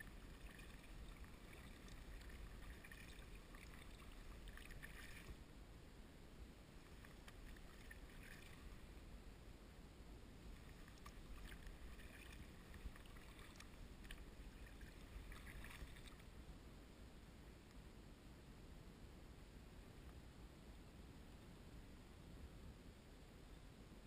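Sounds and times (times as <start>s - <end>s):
paddle splashes and drips: 0.0s - 5.5s, 6.8s - 8.9s, 10.5s - 16.3s
low steady rumble: 0.0s - 24.0s.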